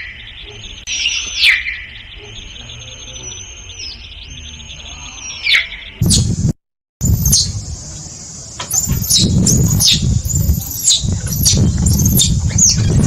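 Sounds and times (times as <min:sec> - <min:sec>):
high sharp chirping calls: 0:00.0 - 0:13.0
steady low rumble: 0:06.0 - 0:13.0.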